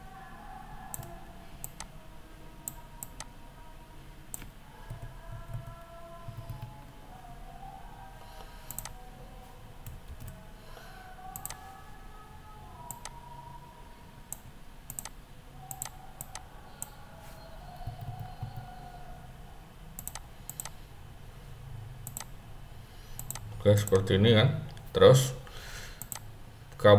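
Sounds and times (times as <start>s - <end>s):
faint low hum: 0.0s - 26.9s
computer mouse clicks: 0.9s - 1.9s, 2.7s - 3.3s, 4.3s - 6.9s, 8.7s - 9.0s, 11.4s - 11.6s, 12.9s - 13.2s, 14.3s - 16.9s, 17.8s - 18.7s, 20.0s - 20.8s, 22.0s - 22.3s, 23.2s - 24.0s, 26.0s - 26.3s.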